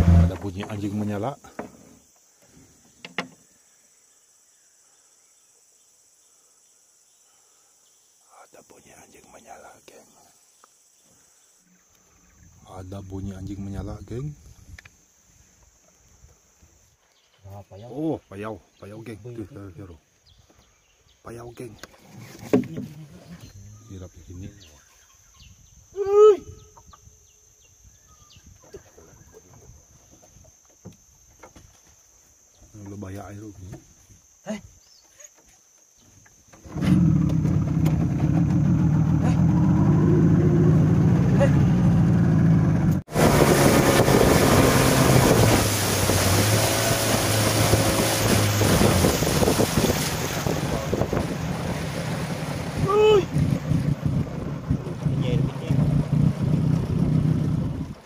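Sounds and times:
high-pitched insect drone: 0.9s - 18.2s, 23.0s - 36.6s.

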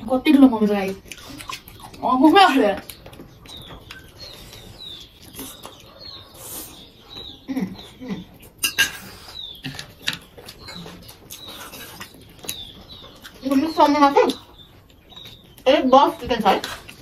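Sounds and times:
small bird chirping: 0.0s - 17.0s
person chewing: 0.8s - 7.5s, 8.3s - 13.5s.

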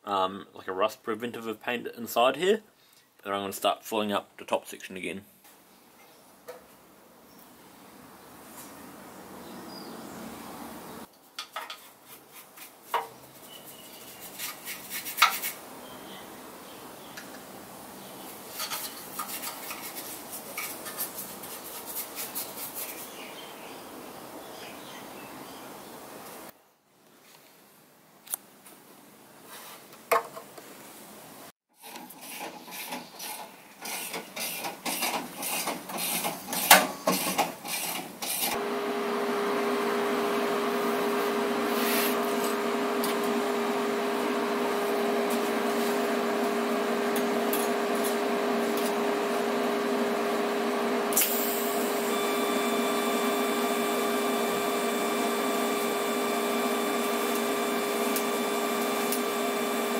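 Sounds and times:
steady mechanical hum: 38.5s - 59.9s
welder arc buzzing: 38.5s - 59.9s.

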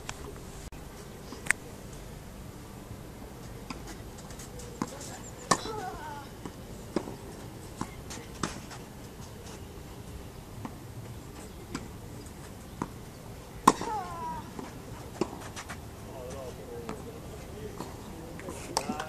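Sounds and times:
tennis racket striking ball: 3.7s - 6.0s, 13.6s - 15.7s.

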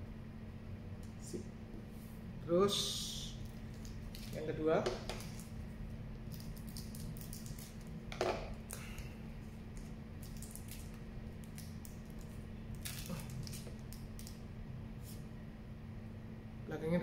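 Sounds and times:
foil wrapper crinkling: 3.5s - 4.4s, 6.3s - 8.0s, 9.7s - 14.4s.

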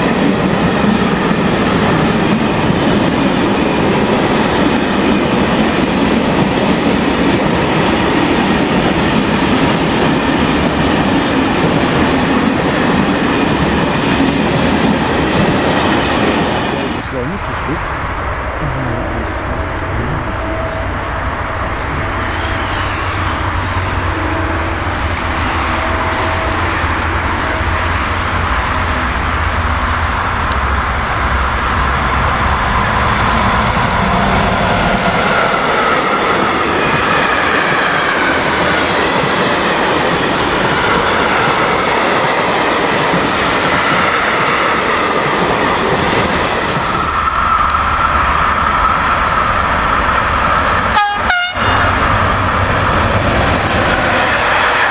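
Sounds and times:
locomotive low rumble: 17.0s - 22.6s.

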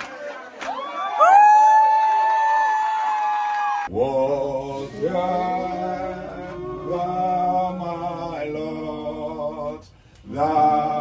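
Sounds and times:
man singing a slow hymn: 3.9s - 11.0s.

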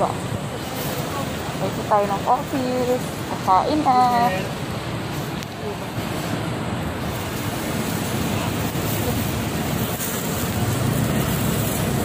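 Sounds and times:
city street traffic: 0.0s - 12.0s
wind rumbling on microphone: 4.5s - 12.0s.

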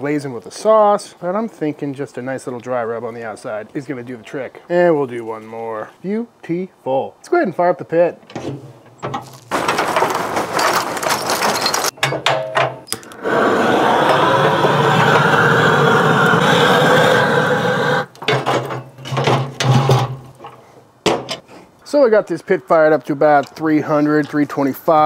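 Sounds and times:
rattling clatter: 8.3s - 13.0s
metal grate clanks: 8.3s - 13.1s
propane torch roaring hiss: 13.0s - 18.2s.

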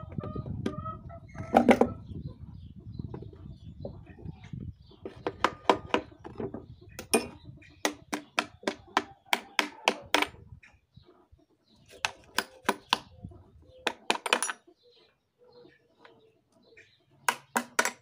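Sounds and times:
knocks of metal and wooden boards: 5.1s - 10.4s, 13.9s - 14.6s, 17.3s - 18.0s.

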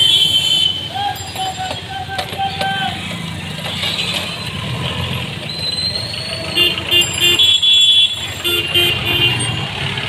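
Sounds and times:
vehicle horn honking: 0.0s - 1.0s, 6.6s - 9.6s
street traffic: 0.0s - 10.0s.

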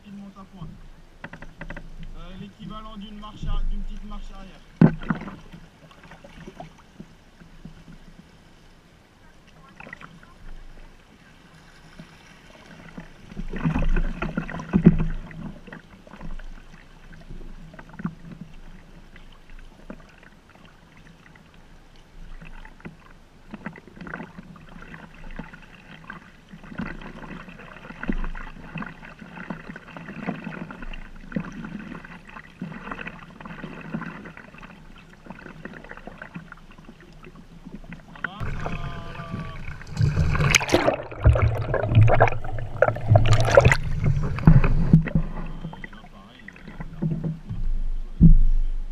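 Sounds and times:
water lapping against hull: 0.0s - 48.9s
paddle splashing in water: 0.8s - 48.9s.

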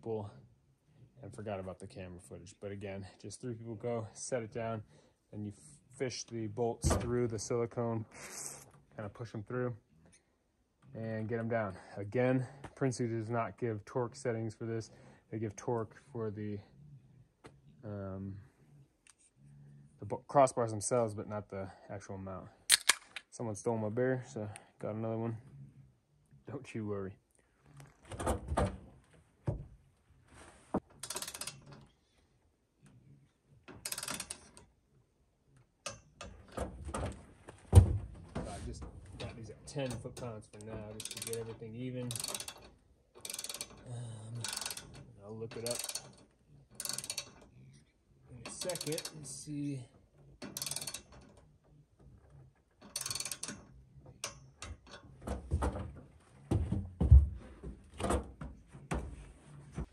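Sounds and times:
ratchet wrench clicking: 31.0s - 31.7s, 33.8s - 34.6s, 41.0s - 41.5s, 42.1s - 43.8s, 44.4s - 45.0s, 45.6s - 46.2s, 46.8s - 47.4s, 48.5s - 49.2s, 50.4s - 51.3s, 52.8s - 55.0s.

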